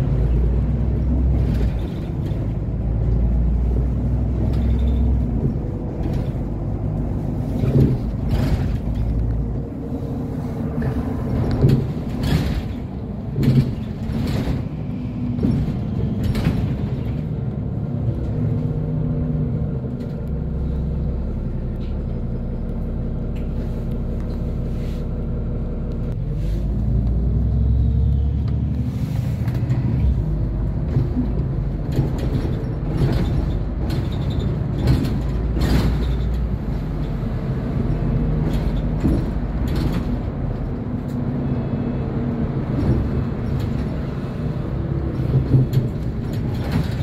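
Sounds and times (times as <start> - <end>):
bus diesel engine: 0.0 - 47.0
knocks and rattles: 4.3 - 9.3, 10.8 - 17.4, 30.5 - 37.3, 45.0 - 47.0.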